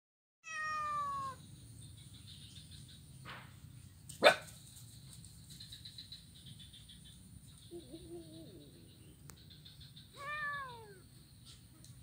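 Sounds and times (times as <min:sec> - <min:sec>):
insects chirring: 0:00.8 - 0:12.0
dog barking: 0:04.2 - 0:04.6.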